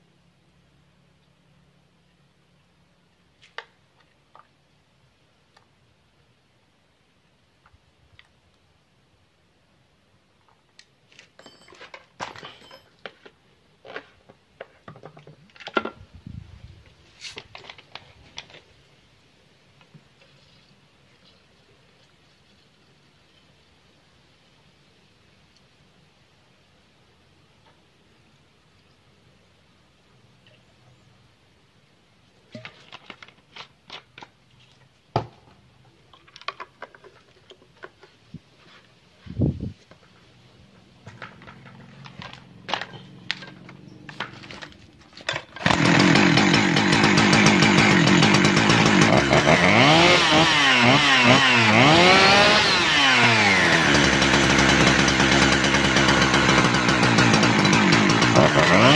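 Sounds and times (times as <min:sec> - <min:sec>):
hands and tools handling chainsaw: 0:10.8 - 0:16.0, 0:17.2 - 0:18.7, 0:32.5 - 0:58.9.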